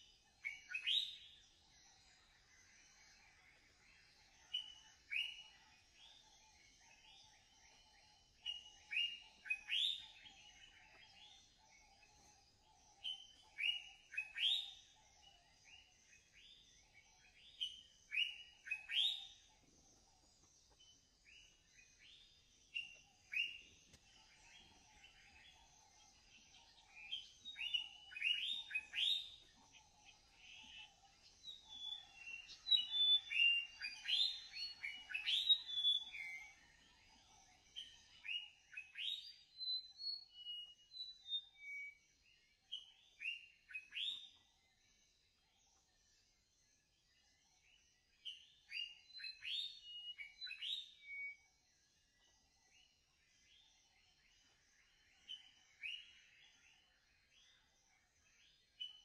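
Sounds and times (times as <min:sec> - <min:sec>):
birds singing and calling: 0:00.0 - 0:59.0.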